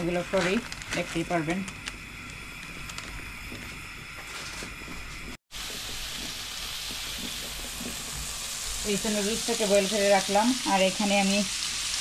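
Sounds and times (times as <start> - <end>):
steady hiss: 1.7 - 12.0
chicken sizzling in frying pan: 5.5 - 12.0.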